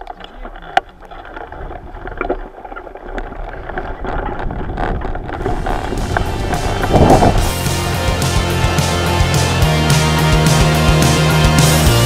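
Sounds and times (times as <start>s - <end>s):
bicycle rattles and clicks: 0.0s - 7.6s
wind buffeting microphone: 1.4s - 7.9s.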